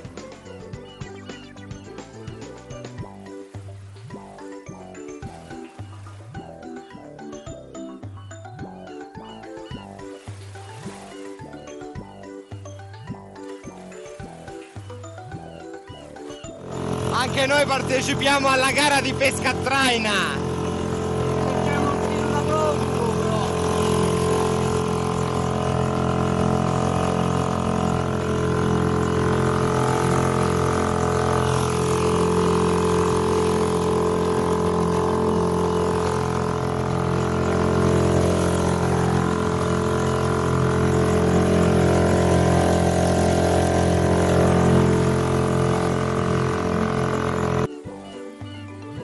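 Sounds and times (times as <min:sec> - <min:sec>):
outboard motor drone: 0:00.0 - 0:49.0
wind: 0:00.0 - 0:49.0.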